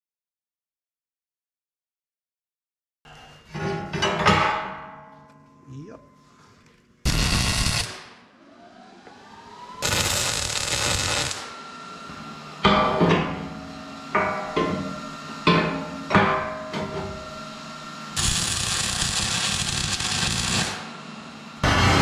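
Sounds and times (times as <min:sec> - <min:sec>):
steel plate clanging on steel: 0:03.5 - 0:05.3, 0:14.2 - 0:14.8
arc welding crackle: 0:07.0 - 0:08.2, 0:09.8 - 0:11.6, 0:18.2 - 0:21.0.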